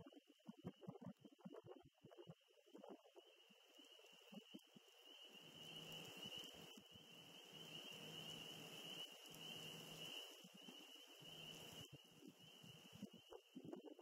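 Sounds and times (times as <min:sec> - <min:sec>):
wind noise on microphone: 0:09.8 - 0:14.0.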